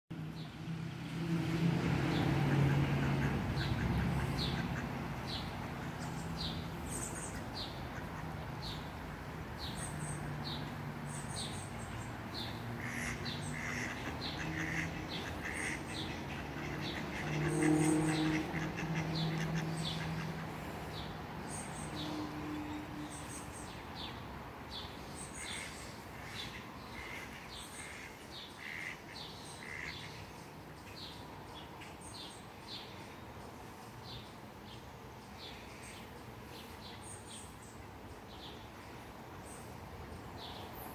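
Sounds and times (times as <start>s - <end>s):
ducks quacking: 2.3s - 6.1s, 12.4s - 21.0s, 25.4s - 30.3s.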